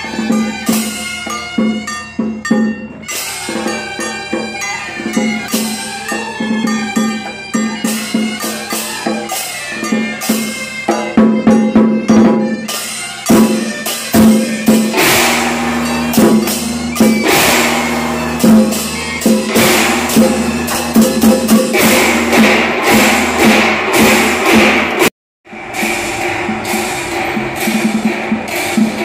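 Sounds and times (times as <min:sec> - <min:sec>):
gongs ringing: 0:00.0 - 0:29.0
hand cymbals clashing: 0:00.0 - 0:29.0
barrel drum beaten rapidly: 0:13.2 - 0:29.0.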